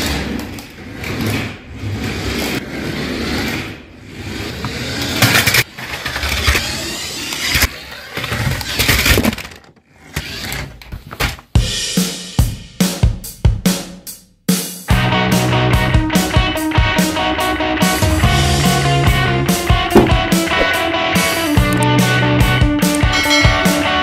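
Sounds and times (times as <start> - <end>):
toy car motor revving: 0.0 - 10.9.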